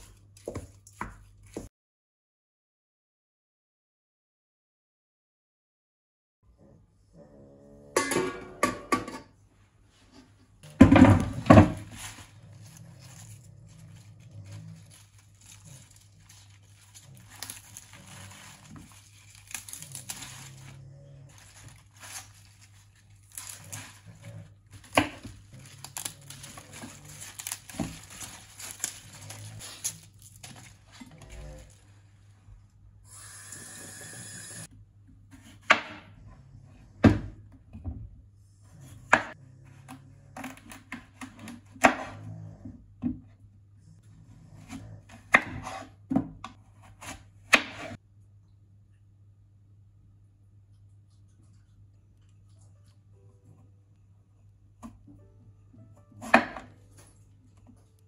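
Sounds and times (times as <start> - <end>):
leafy stalks tearing by hand: 11.8 - 31.8
knife cutting and striking board: 46.8 - 48.0.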